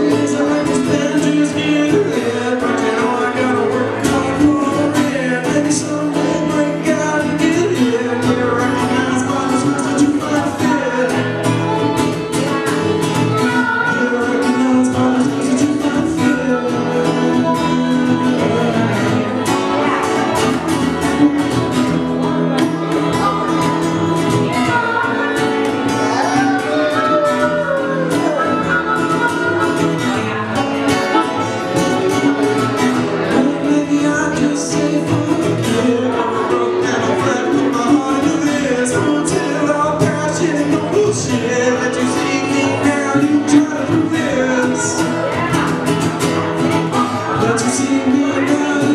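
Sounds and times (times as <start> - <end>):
harmonica: 0.0 - 45.5
acoustic guitar: 0.0 - 48.9
man singing: 0.0 - 48.9
plucked upright bass: 0.0 - 48.9.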